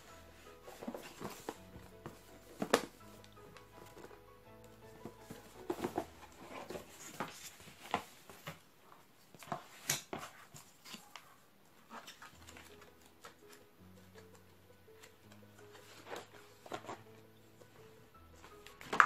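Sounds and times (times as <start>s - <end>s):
cardboard boxes being handled: 0.0s - 8.6s.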